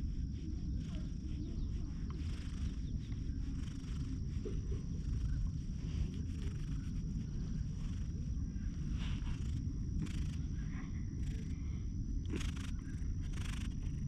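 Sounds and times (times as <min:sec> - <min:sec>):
cat purring: 0:00.0 - 0:14.0.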